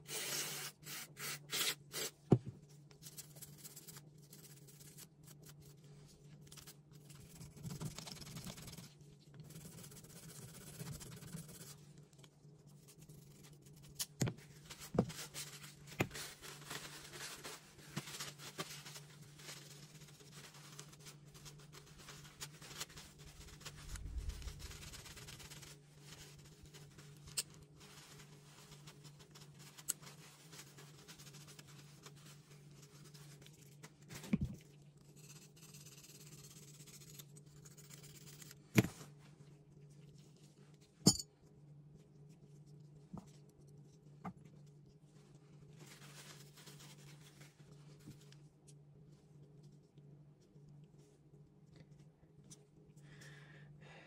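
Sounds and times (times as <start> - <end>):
low steady hum: 2.3 - 54.0
paper towel rubbing: 14.6 - 27.1.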